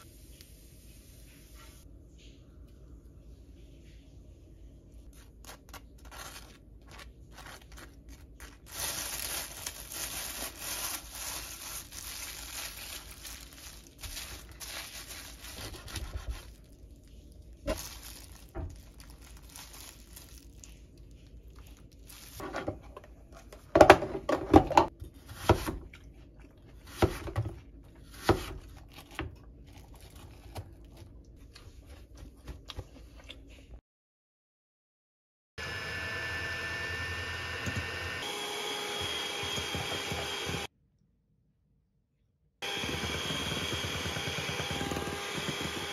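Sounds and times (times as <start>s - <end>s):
baking paper crinkling: 5.0s - 23.6s, 28.0s - 32.7s
sharp crunches and knocks: 17.6s - 20.4s.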